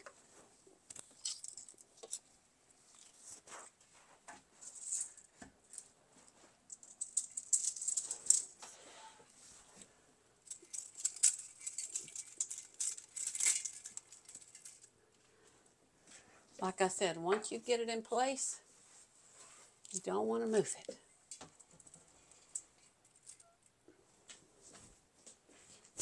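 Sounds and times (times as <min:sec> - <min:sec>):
dry vines crackling and rustling: 0:06.7 - 0:08.8, 0:09.5 - 0:14.9.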